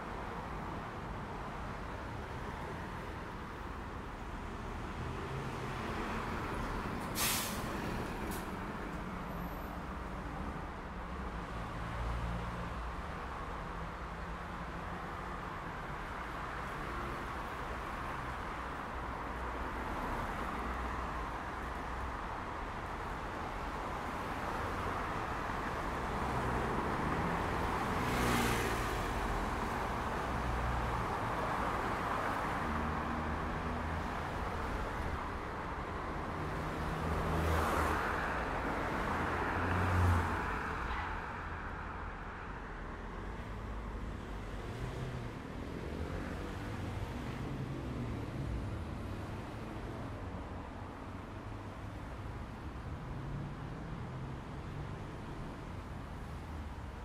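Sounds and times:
traffic engines rumbling: 0:00.0 - 0:57.0
air brakes hissing: 0:07.1 - 0:08.5.

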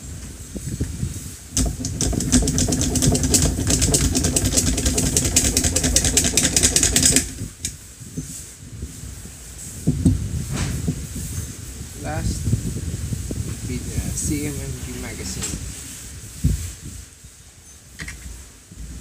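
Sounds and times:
rapid small metallic clicks: 0:01.6 - 0:07.8.

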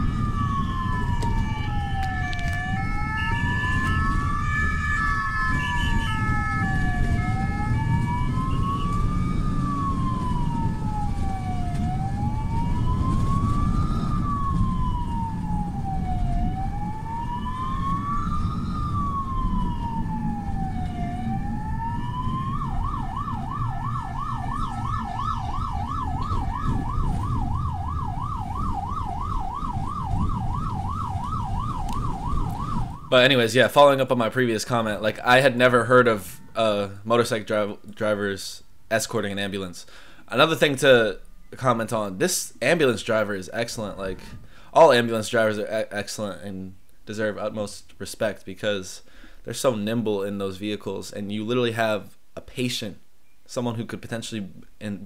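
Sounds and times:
siren wail and yelp: 0:00.0 - 0:33.5, 0:35.8 - 0:37.0, 0:41.1 - 0:41.8, 0:43.6 - 0:45.0
two-tone hi-lo siren: 0:00.0 - 0:33.5
engine and road noise: 0:00.0 - 0:53.2.

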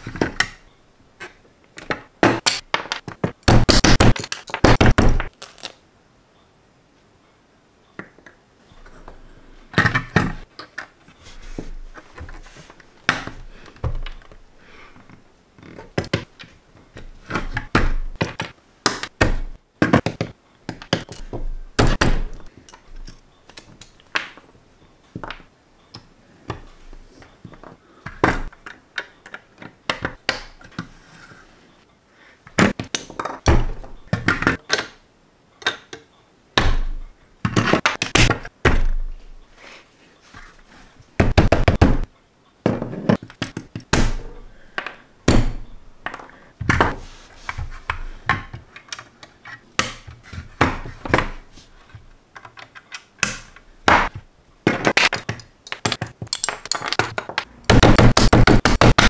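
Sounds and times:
plastic bricks clicking: 0:54.8 - 0:57.5.

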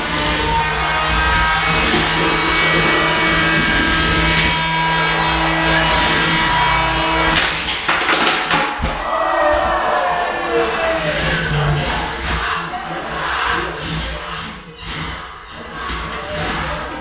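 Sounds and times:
electric motors whining: 0:00.0 - 0:07.9.

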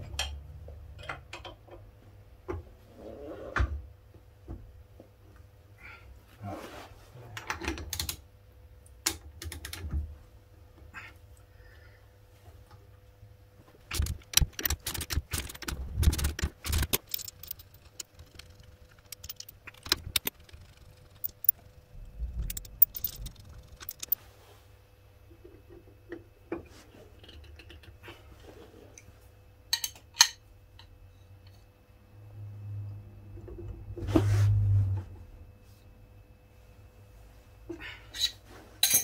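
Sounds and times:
socket wrench clicking: 0:13.9 - 0:21.6, 0:22.3 - 0:24.2
steel tools clinking on metal: 0:22.3 - 0:24.2.

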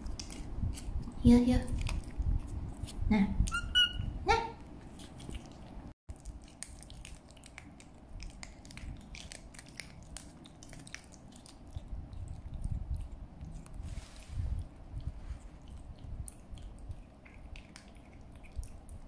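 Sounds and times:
kitten licking wet smacking: 0:05.1 - 0:13.8, 0:14.5 - 0:19.0.

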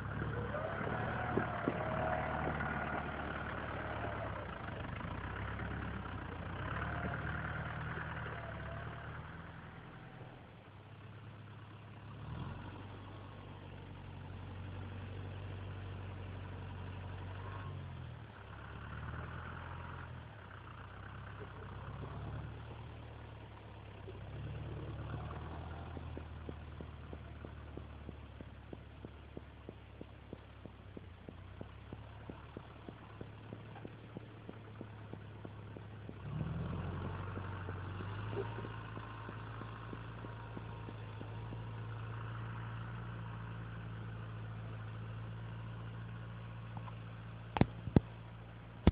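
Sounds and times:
tractor diesel engine running: 0:00.0 - 0:48.9
fast regular ticking: 0:25.2 - 0:42.6.

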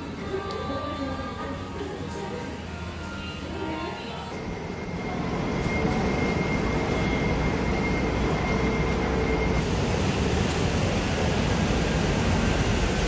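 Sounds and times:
road traffic rumble: 0:04.3 - 0:13.0.

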